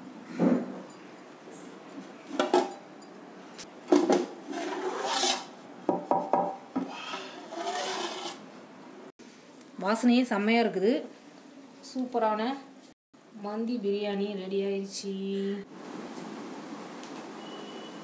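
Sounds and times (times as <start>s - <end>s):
metal scraping on metal: 7.4s - 8.4s.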